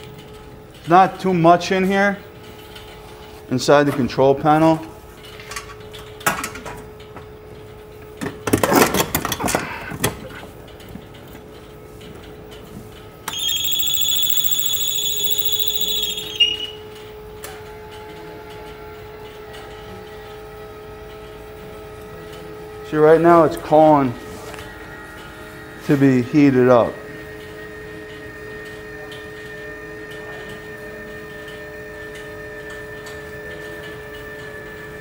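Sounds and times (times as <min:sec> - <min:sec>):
high electronic beep: 0:13.3 - 0:16.8.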